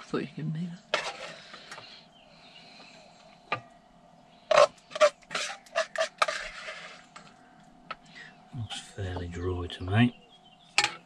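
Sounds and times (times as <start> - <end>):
spoon scraping metal saucepan: 0.9 - 1.5, 4.5 - 7.3.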